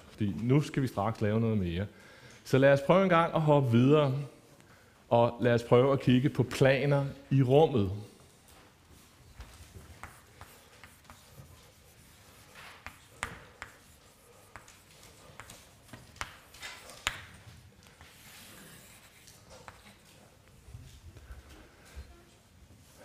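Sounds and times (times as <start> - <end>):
chalk tapping and scratching: 9.3 - 20.3
chalk scraping on blackboard: 9.7 - 17.2, 18.0 - 20.0.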